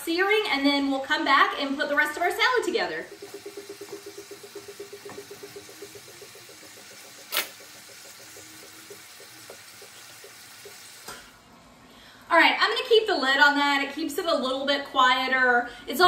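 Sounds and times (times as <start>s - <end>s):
faint rapid pulsing hum: 1.2s - 12.3s.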